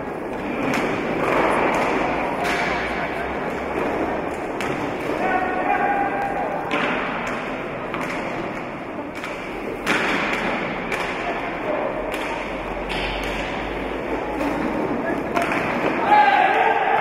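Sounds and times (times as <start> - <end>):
echoing sports hall din: 0.0 - 17.0
sticks knocking ball: 6.7 - 16.1.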